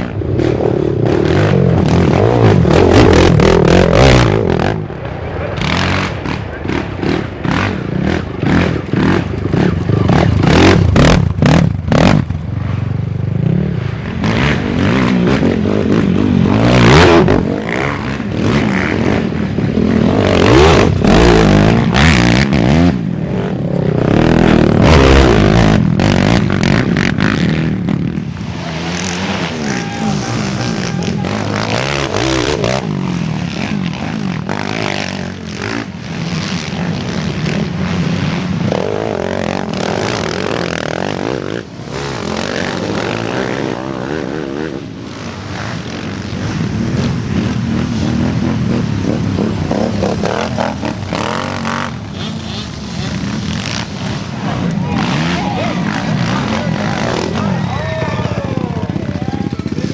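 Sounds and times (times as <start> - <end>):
quad engines revving: 0.0 - 59.9.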